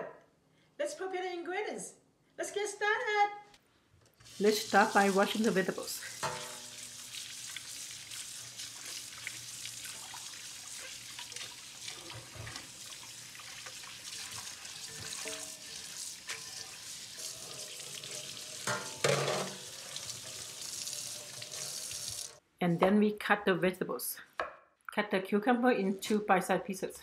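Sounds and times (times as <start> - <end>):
tap water running into sink: 4.2 - 22.4
vegetables rinsed by hand: 4.2 - 22.4.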